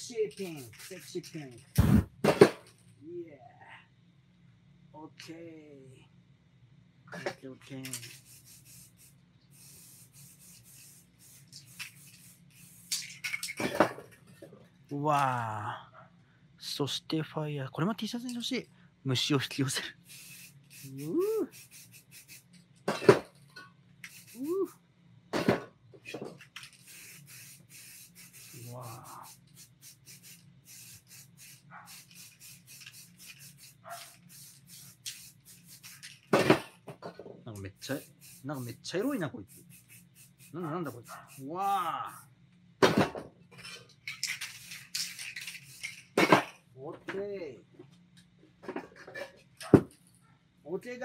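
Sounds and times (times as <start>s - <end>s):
spray paint can hissing: 0.0s - 2.1s, 7.8s - 13.9s, 19.8s - 22.6s, 24.0s - 24.8s, 26.4s - 36.6s, 37.8s - 42.3s, 44.0s - 46.5s.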